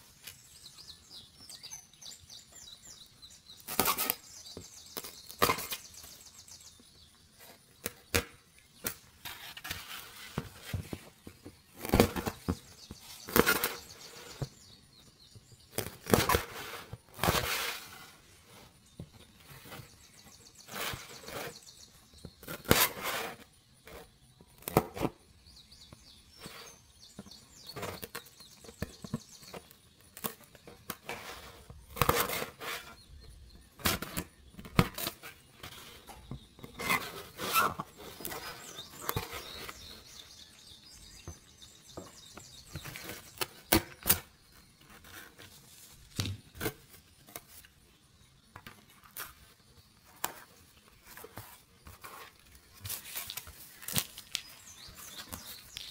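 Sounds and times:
card rustling and scraping: 8.8 - 14.6, 30.2 - 33.1, 33.8 - 40.2, 48.8 - 55.9.

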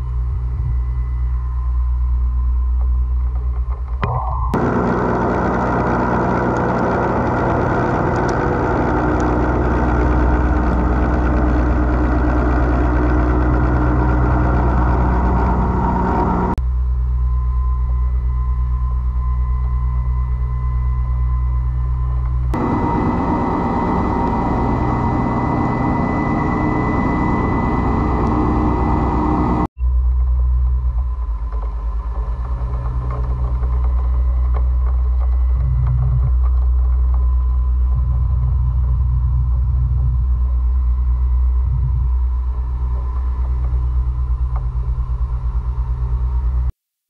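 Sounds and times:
low machine hum: 0.0 - 46.7
milling machine cutting metal: 4.6 - 16.5, 22.6 - 29.6.

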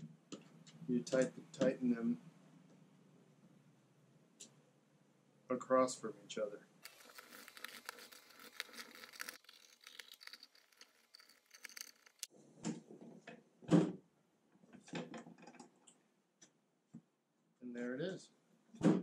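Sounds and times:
screwdriver turning screws: 6.8 - 12.3.

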